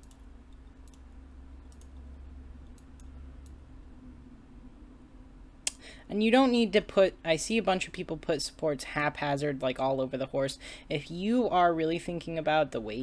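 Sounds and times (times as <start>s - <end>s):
computer mouse clicking: 0.0s - 3.6s
low steady hum: 0.0s - 13.0s.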